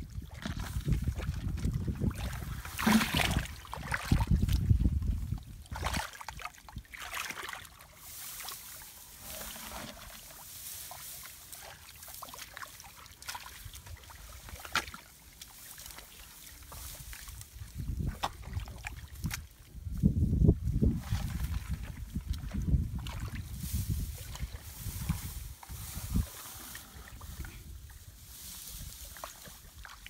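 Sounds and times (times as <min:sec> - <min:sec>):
small water splashes: 0:00.1 - 0:19.8, 0:21.0 - 0:27.5, 0:28.8 - 0:30.0
rustling grass stalks: 0:07.4 - 0:18.0, 0:19.1 - 0:30.0.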